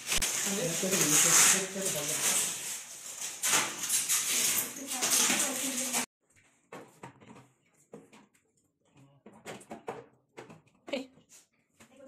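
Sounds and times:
plastic film peeling rustle: 0:00.0 - 0:06.1.

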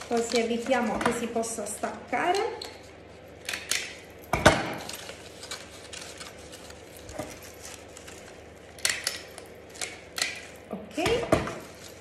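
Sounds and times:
paper rustling: 0:04.8 - 0:08.7.

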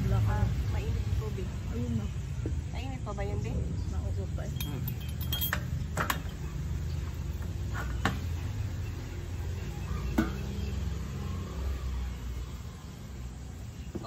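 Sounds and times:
dishes and utensils clinking: 0:04.5 - 0:06.5.

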